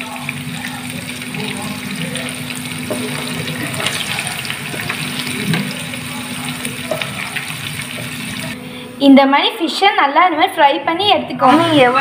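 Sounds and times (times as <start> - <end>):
fish sizzling in hot oil: 0.0 - 8.6.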